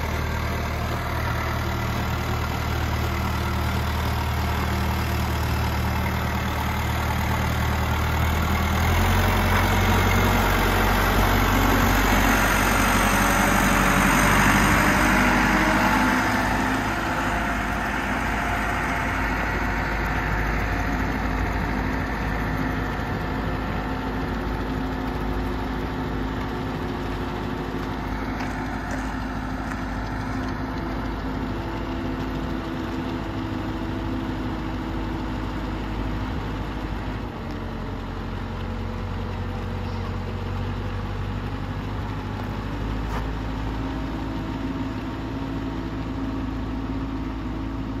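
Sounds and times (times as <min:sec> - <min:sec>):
diesel engine driving past: 0:00.0 - 0:48.0.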